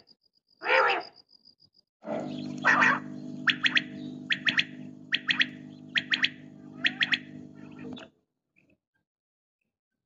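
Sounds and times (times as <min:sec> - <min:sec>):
steady low hum: 0:02.0 - 0:08.1
quail calling: 0:02.2 - 0:08.0.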